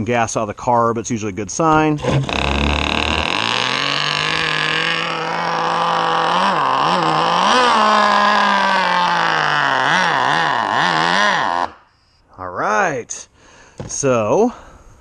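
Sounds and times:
two-stroke outboard engine running: 3.5 - 8.4.

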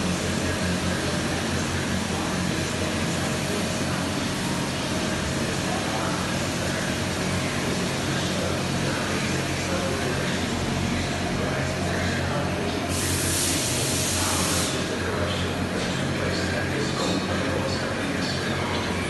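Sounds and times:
low machinery hum: 0.0 - 19.0
even hiss: 12.9 - 15.0.

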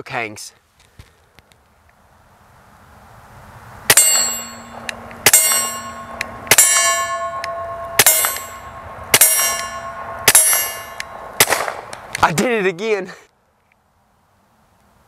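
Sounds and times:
steel target clanging: 3.9 - 11.9
pistol shots: 3.9 - 12.1.

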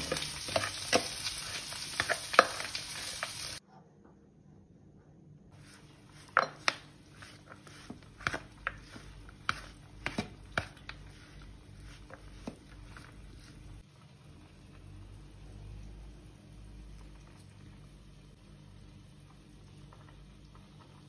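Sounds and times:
metal spatula scraping dish: 5.6 - 11.2.

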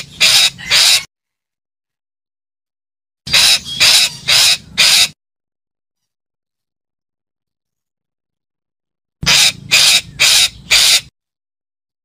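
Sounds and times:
parakeet harsh rasping calls: 0.0 - 1.1, 3.3 - 5.2, 9.2 - 11.1.

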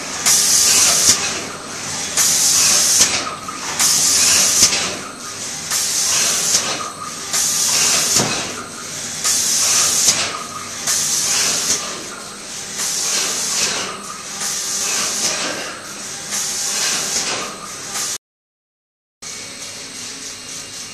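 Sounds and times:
spray guns hissing: 0.1 - 4.9, 5.7 - 15.6.

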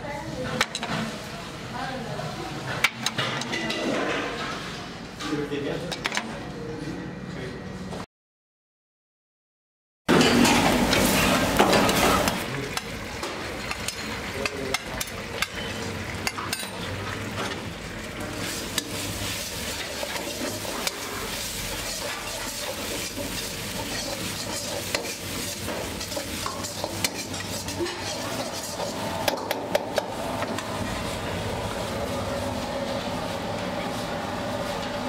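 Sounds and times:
food sizzling: 10.1 - 34.7
ladle scraping steel pan: 18.4 - 29.6
steel utensils clinking: 18.4 - 29.8.

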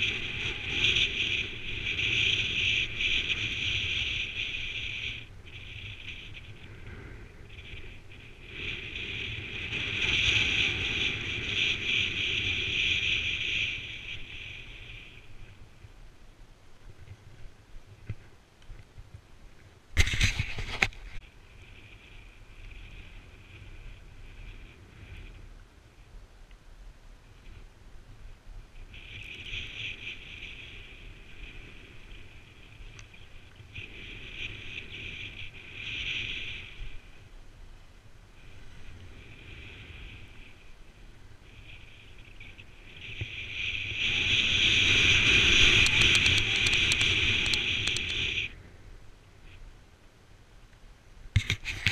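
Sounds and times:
skis scraping over snow: 0.0 - 15.6, 20.0 - 26.0, 38.4 - 48.5
wind rumble on microphone: 0.0 - 51.9.

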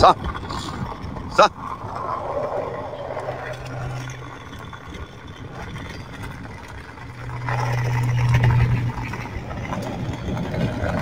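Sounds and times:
skateboard wheels rolling on asphalt: 0.0 - 11.0.

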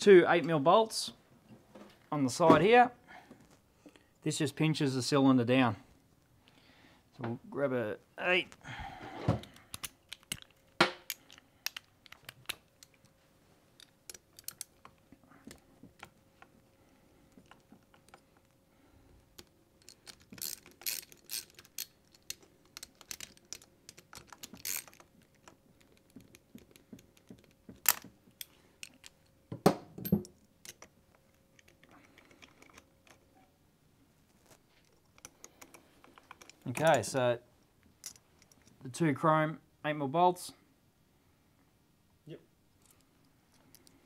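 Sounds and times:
socket ratchet clicking: 13.8 - 15.0, 19.4 - 29.1.

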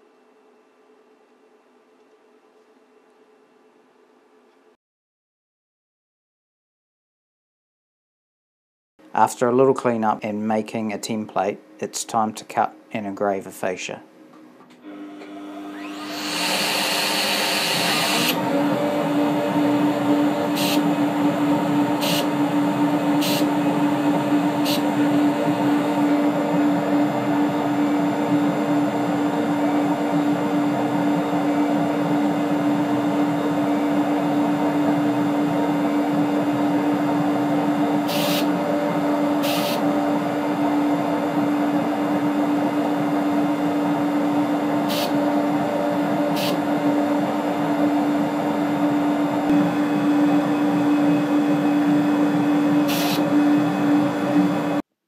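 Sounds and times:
router spindle running: 14.9 - 40.4, 43.7 - 54.8
dust extraction vacuum: 14.9 - 54.8
hissy bursts: 20.5 - 20.9, 38.1 - 38.5, 39.4 - 39.9, 44.9 - 45.2, 46.3 - 46.6, 52.9 - 53.2.

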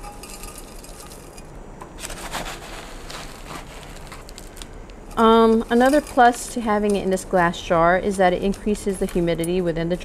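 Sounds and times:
plastic pot scraping in glass jar: 2.0 - 4.6.

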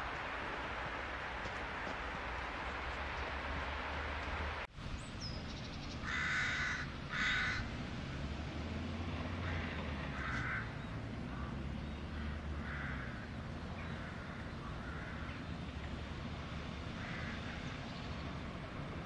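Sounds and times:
crows cawing: 6.0 - 7.7, 9.4 - 15.4, 16.9 - 17.8.

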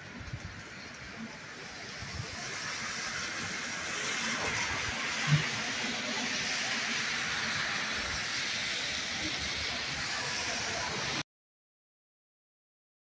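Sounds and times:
heavy rain: 0.0 - 11.2.

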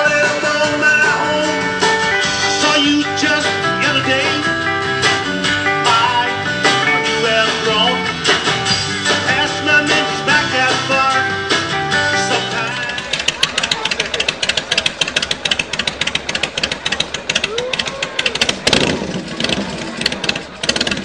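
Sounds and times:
electric guitar: 0.0 - 14.4.

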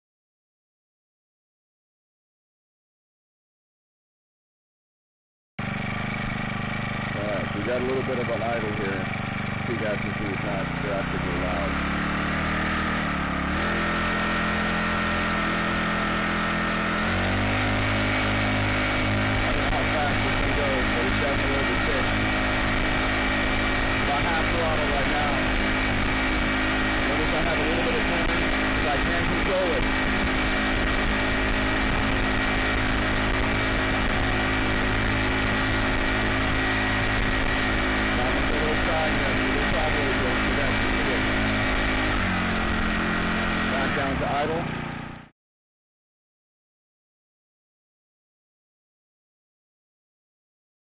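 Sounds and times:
small engine idling: 5.6 - 45.3.

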